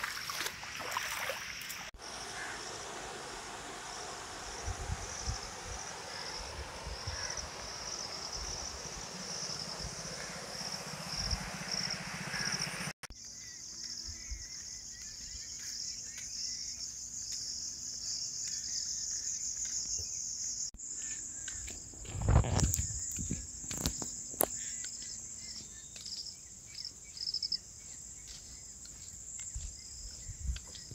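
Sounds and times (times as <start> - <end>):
insects chirring: 0.1 - 30.9
rushing noise: 2.0 - 13.0.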